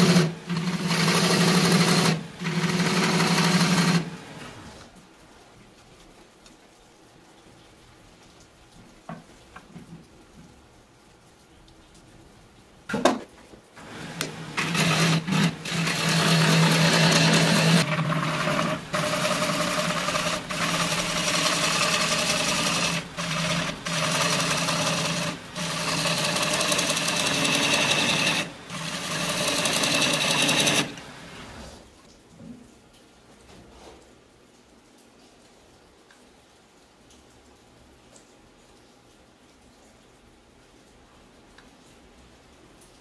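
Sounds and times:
wood lathe humming: 0.0s - 4.6s, 13.8s - 31.5s
hollowing tool scraping wood: 0.0s - 4.7s, 13.8s - 31.6s.

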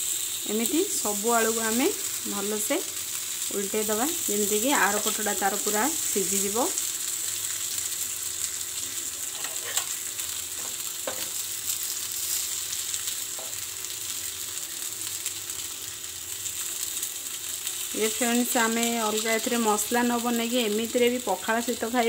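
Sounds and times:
potato slices sizzling in oil: 0.0s - 22.0s.

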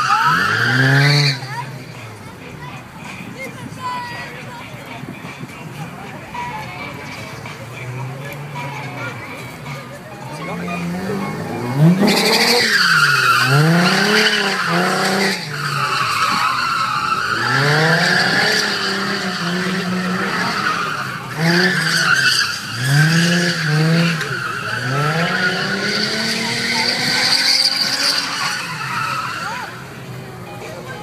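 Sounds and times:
tyre squeal: 0.0s - 1.5s, 12.0s - 29.8s
car engine revving: 0.0s - 2.3s, 7.0s - 30.3s.

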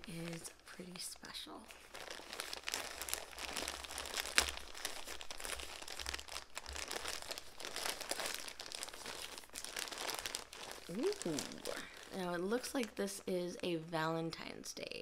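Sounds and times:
plastic bag crinkling and tearing: 1.6s - 13.3s.

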